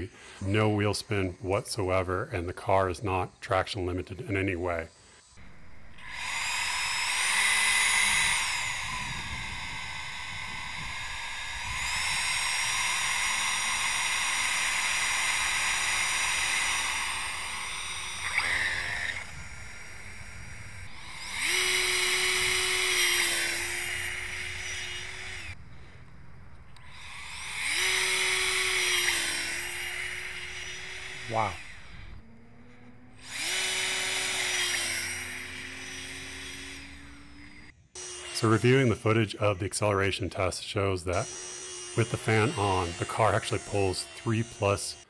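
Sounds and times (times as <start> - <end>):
high-pitched electric fan whine: 5.4 - 25.7, 26.7 - 37.7.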